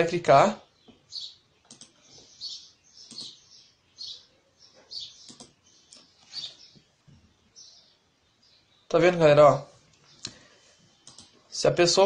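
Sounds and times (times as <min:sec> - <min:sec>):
small bird chirping: 0:00.6 - 0:11.5
mouse clicks: 0:01.6 - 0:02.0, 0:03.0 - 0:03.4, 0:05.2 - 0:06.1, 0:11.0 - 0:11.4.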